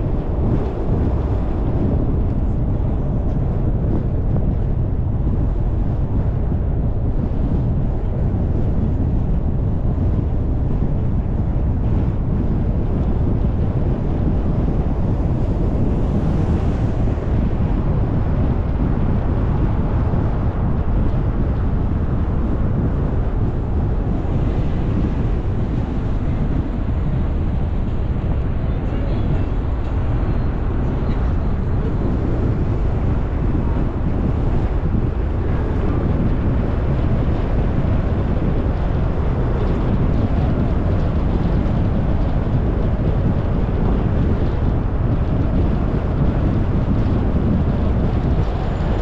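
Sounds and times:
car road and wind rumble: 0.0s - 49.0s.

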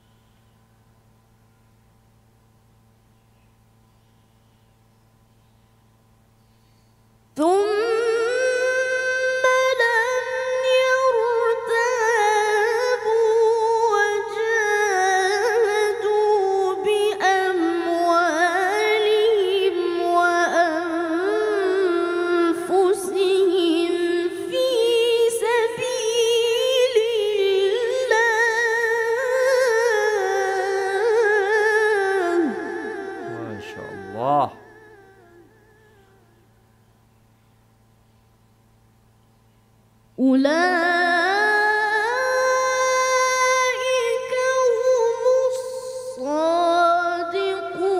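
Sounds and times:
boy reciting in melodic style: 7.4s - 36.3s, 40.2s - 47.9s.

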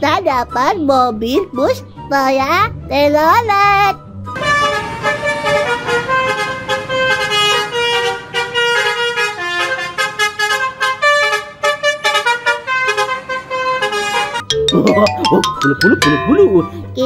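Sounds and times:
musical air horn tune: 4.4s - 11.4s.

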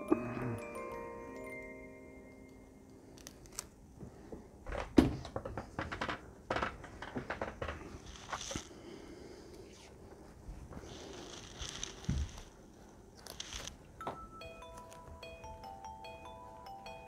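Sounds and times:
tape peeling and tearing: 8.0s - 8.7s, 10.9s - 12.5s, 13.2s - 13.8s.

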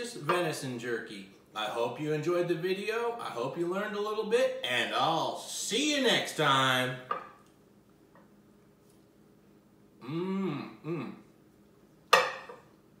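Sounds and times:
man clearing his throat: 10.0s - 11.3s.

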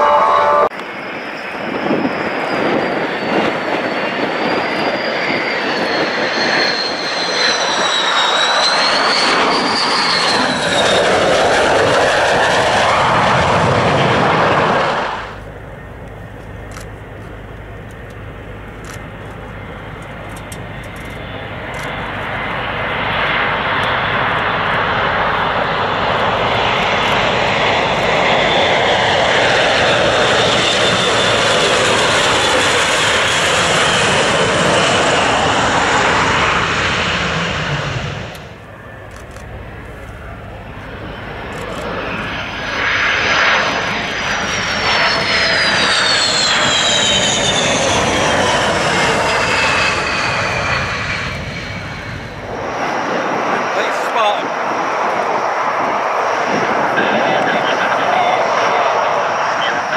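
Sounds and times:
fighter jet engine whine: 0.0s - 59.9s
turboprop aircraft engines: 0.0s - 59.9s.

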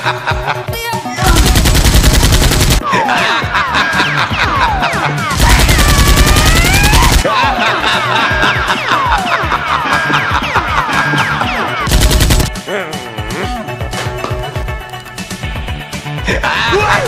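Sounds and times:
background music with swooping tones: 0.0s - 17.0s
automatic machine-gun fire: 1.3s - 2.8s, 5.4s - 7.3s, 11.9s - 12.6s.

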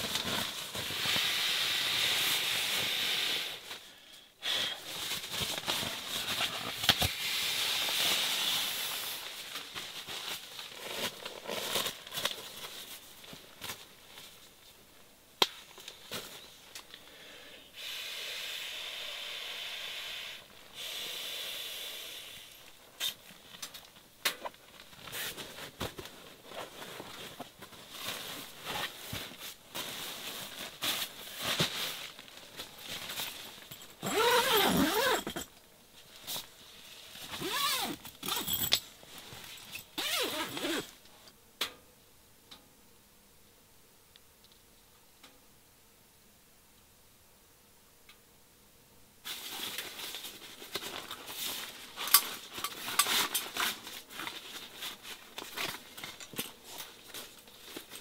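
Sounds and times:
nylon gear rustling: 7.7s - 14.4s, 24.5s - 35.5s, 36.1s - 40.9s, 49.3s - 58.0s.

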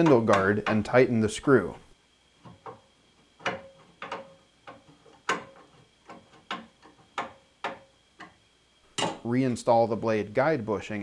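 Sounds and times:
tool clicking while tightening screw: 3.4s - 8.4s.

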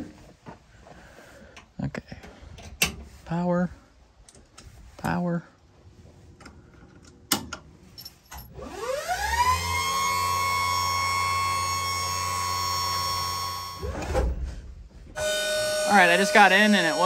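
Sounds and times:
electric motor whine: 8.6s - 13.8s, 15.2s - 17.0s.

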